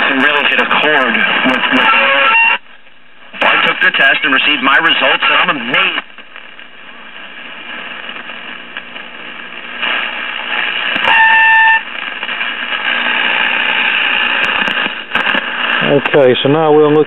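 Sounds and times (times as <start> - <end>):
radio static hiss: 0.0 - 17.0
steady radio whistle: 1.3 - 2.6, 10.6 - 14.3.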